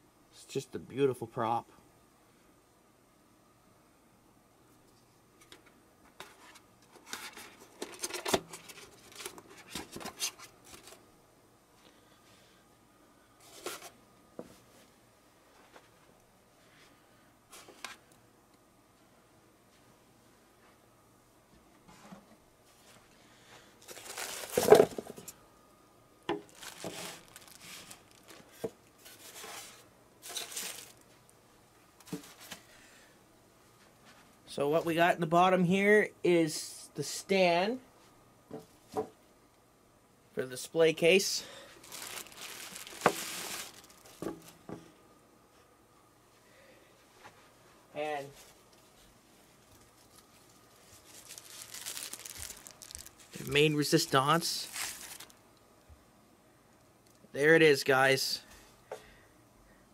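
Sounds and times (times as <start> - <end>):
packaging rustling and scraping: 6.1 - 11.0, 13.4 - 14.0, 23.8 - 25.3, 26.4 - 31.1, 32.0 - 32.7, 41.8 - 44.6, 49.6 - 54.0, 54.6 - 55.4
sharp clicks of packaging: 51.0 - 53.5.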